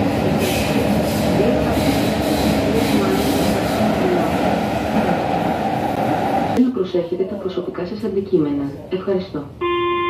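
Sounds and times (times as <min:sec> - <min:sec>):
train wheels rumbling on rail: 0:00.0 - 0:07.5.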